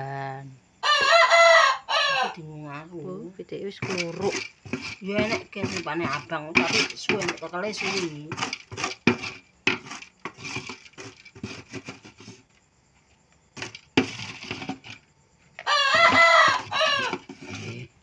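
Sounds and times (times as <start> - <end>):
rooster crowing: 0.8 - 2.4, 15.6 - 17.3
utensils scraping pots: 3.7 - 12.5, 13.6 - 15.1, 15.9 - 18.0.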